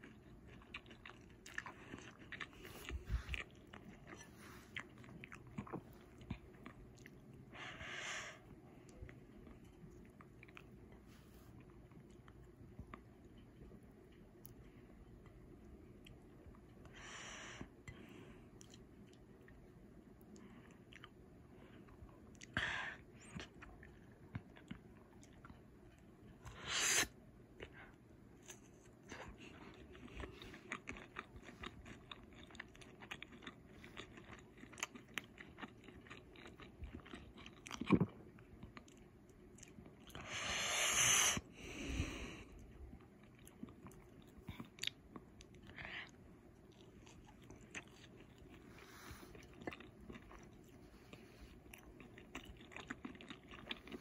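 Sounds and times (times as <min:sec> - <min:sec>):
person chewing crunchy food: 0:00.0 - 0:07.5, 0:27.6 - 0:54.0.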